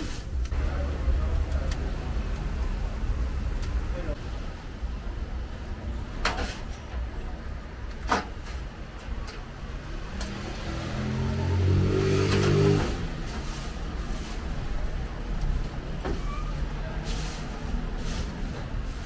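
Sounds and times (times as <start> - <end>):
motor vehicle passing: 9.8 - 16.0.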